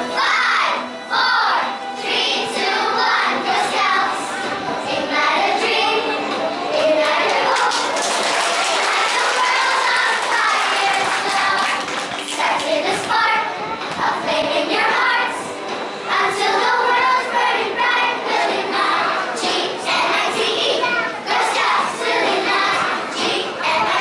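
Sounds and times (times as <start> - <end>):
girls singing together: 0.0 - 24.0
hand claps: 7.3 - 12.7.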